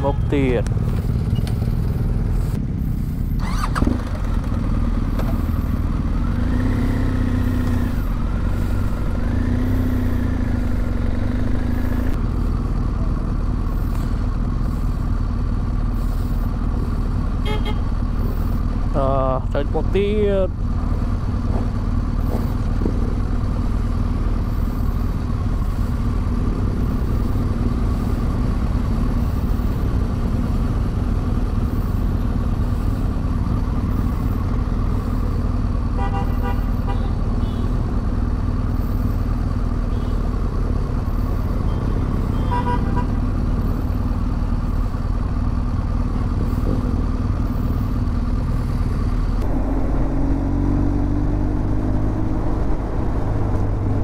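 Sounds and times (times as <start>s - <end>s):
motorcycle engine running: 0.0s - 54.0s
horn beeps: 41.6s - 43.1s.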